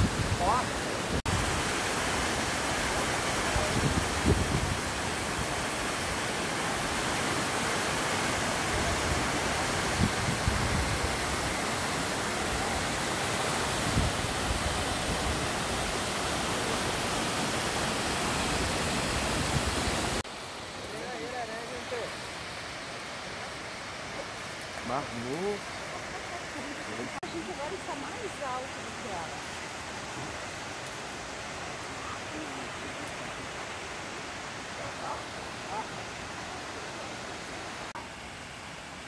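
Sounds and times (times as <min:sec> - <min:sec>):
waterfall roaring: 0:00.0 - 0:39.0.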